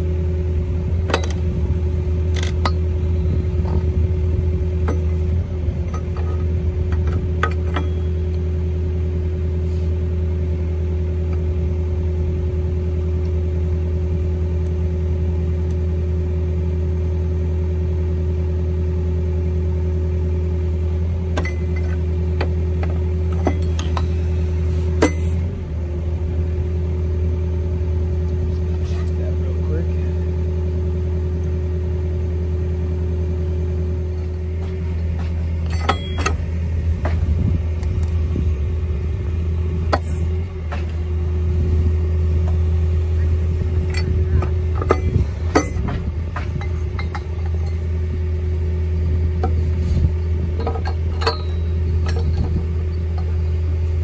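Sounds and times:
engine drone: 0.0 - 54.0
hydraulic whine: 0.0 - 54.0
sharp metal clanks: 25.0 - 25.4, 34.6 - 36.5, 43.8 - 47.9, 50.6 - 53.4.

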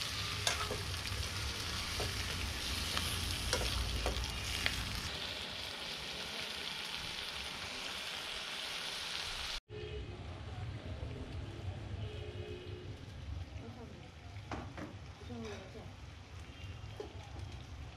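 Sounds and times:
metal spatula scraping a pan: 0.0 - 4.7
chicken sizzling in a wok: 0.0 - 9.6, 12.8 - 17.9.

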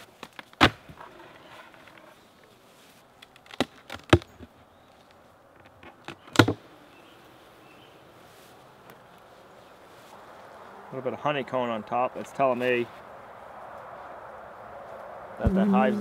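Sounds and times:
bees humming: 15.4 - 16.0.

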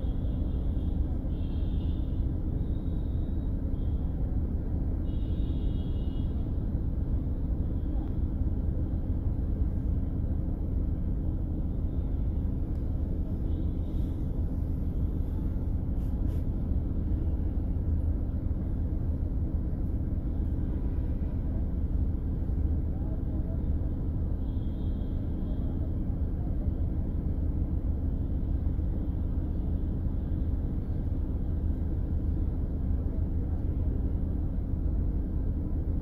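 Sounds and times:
vehicle road and engine rumble: 0.0 - 36.0.

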